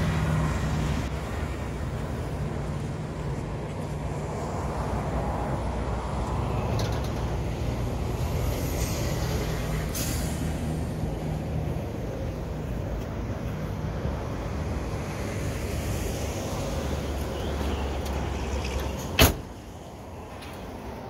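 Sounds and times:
car door slamming: 19.1s - 19.6s.

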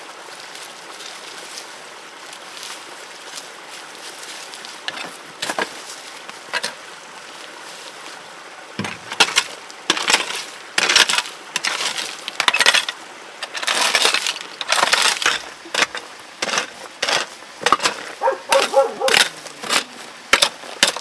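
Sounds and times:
hoe chopping into stony soil: 8.8s - 21.0s
stones clinking: 8.8s - 21.0s.

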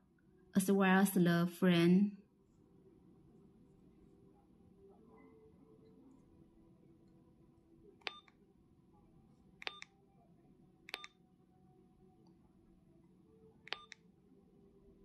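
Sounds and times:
button clicks: 10.9s - 11.1s.

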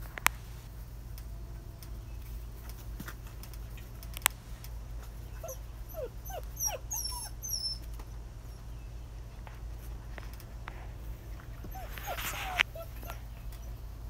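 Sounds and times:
puppies whimpering: 5.3s - 8.7s, 11.3s - 13.9s.

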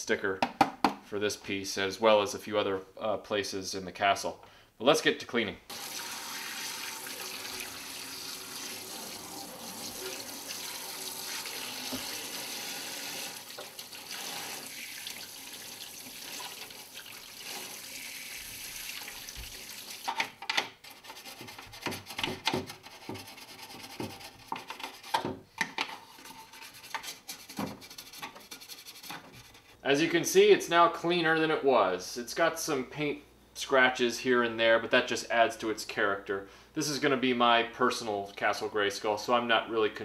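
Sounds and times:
tap running into a metal sink: 11.8s - 12.2s
toothbrush scrubbing plastic: 26.1s - 29.7s.

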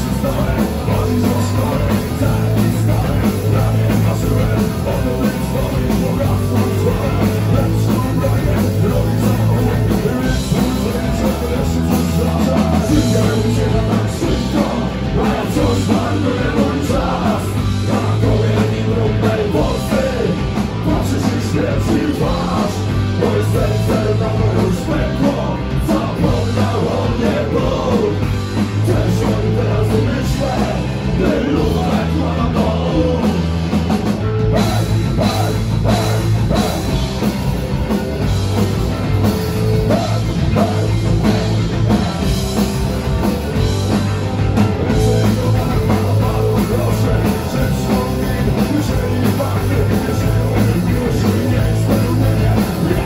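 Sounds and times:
person singing: 0.0s - 28.2s, 44.9s - 53.0s
bass guitar: 0.0s - 53.0s
drum kit: 0.0s - 53.0s
electric guitars: 0.0s - 53.0s.

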